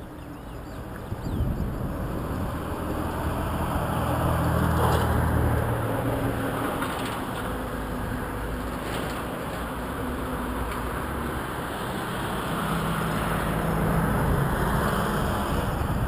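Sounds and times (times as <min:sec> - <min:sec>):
vehicle engine passing: 0:01.6 - 0:08.6.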